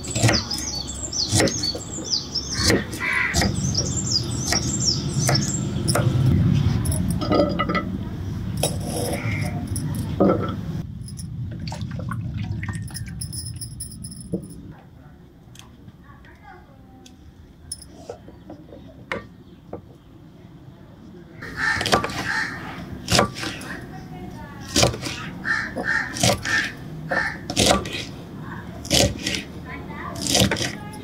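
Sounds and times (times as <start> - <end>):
birds chirping: 0.0 - 7.3, 8.2 - 10.4, 17.1 - 28.7.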